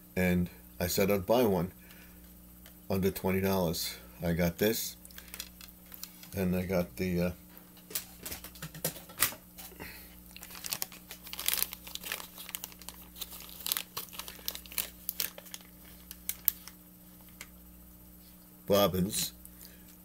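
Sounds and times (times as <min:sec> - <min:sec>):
plastic package crinkling: 0:05.0 - 0:06.4, 0:10.2 - 0:17.5.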